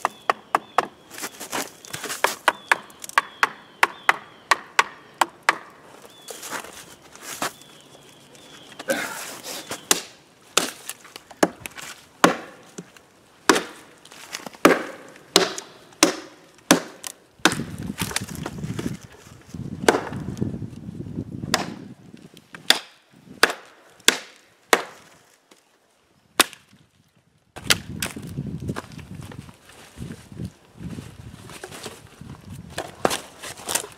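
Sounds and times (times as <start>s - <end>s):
rustling brush and leaves: 0.0s - 3.2s, 5.7s - 33.9s
knife chopping branches: 9.7s - 18.5s, 22.6s - 25.1s.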